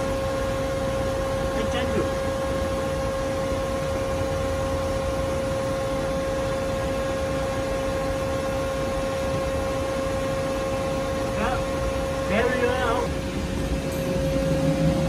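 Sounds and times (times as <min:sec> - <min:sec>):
lathe running: 0:00.0 - 0:15.0.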